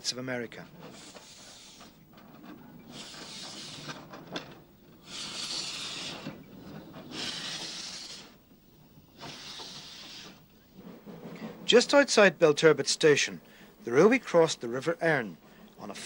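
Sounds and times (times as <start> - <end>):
steam locomotive hissing chuffs: 0.8 - 2.1, 2.8 - 16.0.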